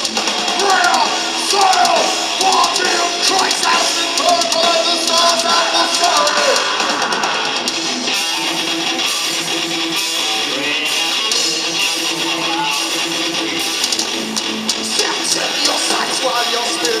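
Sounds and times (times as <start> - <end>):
drum hits: 0.0 - 7.8
distorted electric guitar: 0.0 - 17.0
live rock band playing: 0.0 - 17.0.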